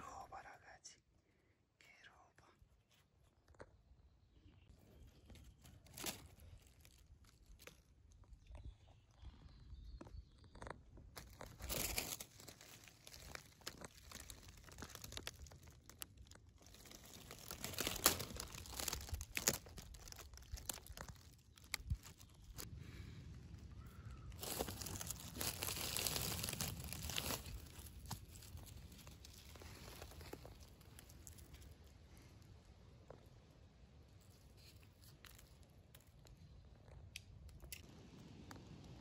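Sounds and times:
dry leaves rustling and crackling: 5.2 - 7.9, 11.2 - 22.7, 23.5 - 31.9, 34.2 - 36.1.

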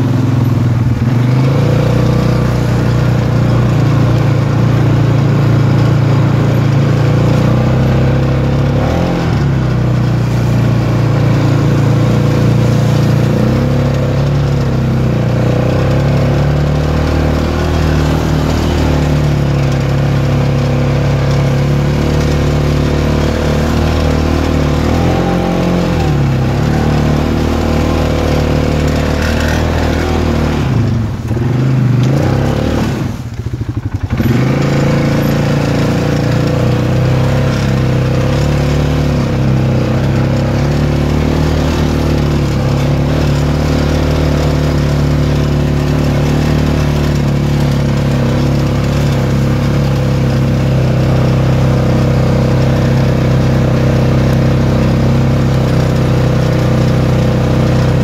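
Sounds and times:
single-cylinder engine revving: 0.0 - 58.0.

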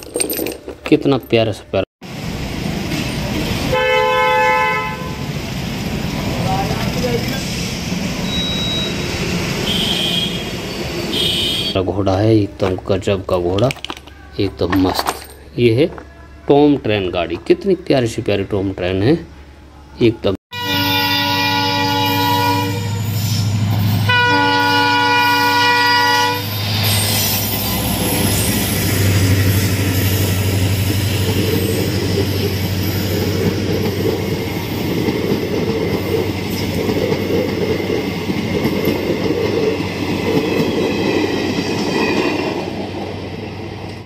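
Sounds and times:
train wheels rumbling on rails: 2.0 - 11.7, 21.5 - 44.0
diesel locomotive horn blasts: 3.7 - 5.3, 9.6 - 11.8, 20.5 - 23.2, 24.0 - 26.6.

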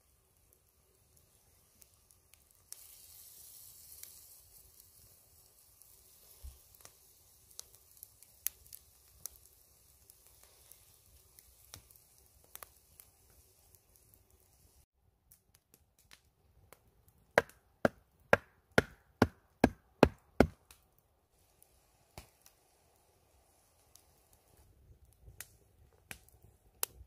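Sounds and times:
juices sizzling in a skillet: 0.0 - 14.9, 21.3 - 24.7
campfire pops and crackles: 0.1 - 27.0.

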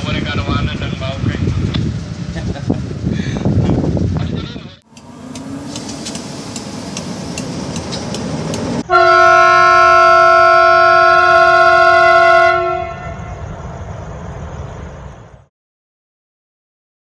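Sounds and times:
train noise: 0.0 - 15.5
locomotive horn blast: 8.8 - 13.5.

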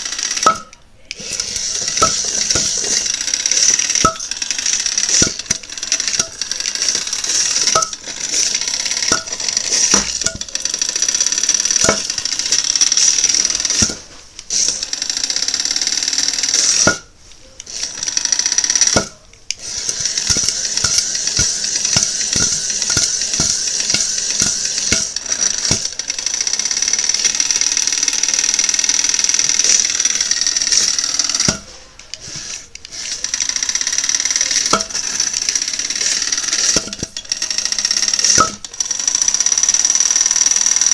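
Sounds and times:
sharp clicks and knocks: 0.0 - 14.5, 18.7 - 19.6, 20.2 - 26.0, 38.0 - 38.8
blade striking foam block: 11.8 - 12.1, 13.8 - 14.2, 16.8 - 17.1, 18.9 - 19.2.

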